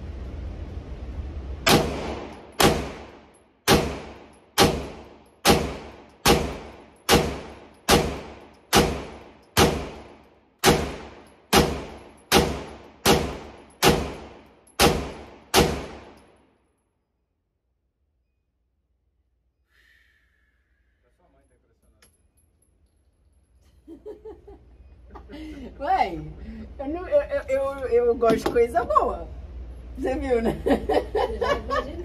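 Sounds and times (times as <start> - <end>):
pistol shots echoing indoors: 1.7 - 16.3.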